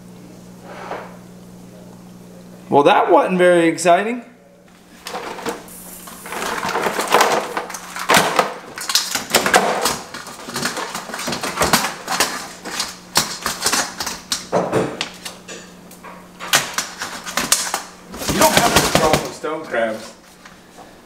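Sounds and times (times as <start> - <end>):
crab shells clattering on metal: 6.3 - 14.6.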